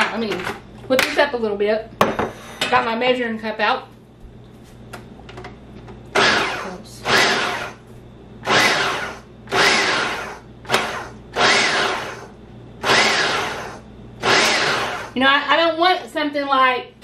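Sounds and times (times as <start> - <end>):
food processor pulsing: 6.1 - 7.8, 8.4 - 15.2.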